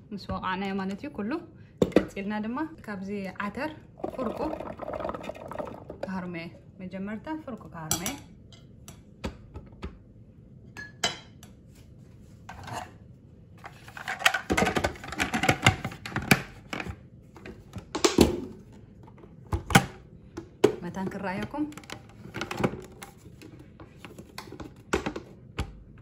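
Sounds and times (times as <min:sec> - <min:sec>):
plastic bowl and lid clattering: 0:13.9 - 0:20.0, 0:20.6 - 0:25.7.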